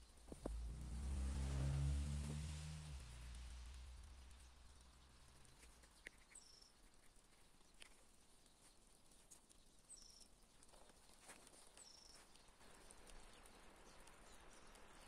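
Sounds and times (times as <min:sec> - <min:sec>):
faint clicks: 0:03.2 - 0:15.0
small bird calling: 0:04.1 - 0:15.0.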